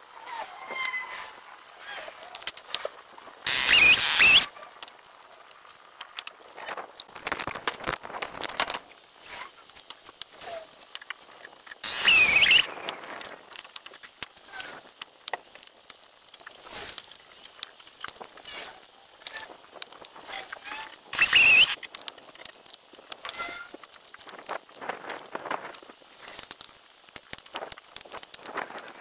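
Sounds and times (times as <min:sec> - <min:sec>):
logs clicking and knocking: 0:02.2 - 0:09.0, 0:09.8 - 0:18.6.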